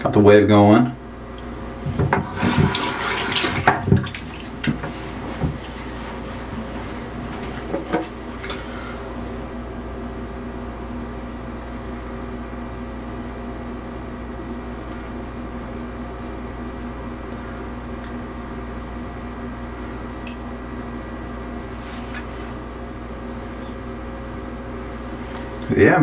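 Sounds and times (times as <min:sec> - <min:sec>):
machine hum: 0:00.0 - 0:26.0.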